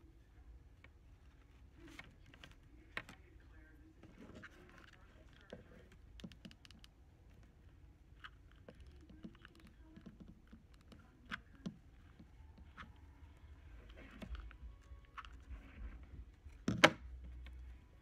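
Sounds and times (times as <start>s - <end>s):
small plastic objects clicking: 8.1s - 15.5s.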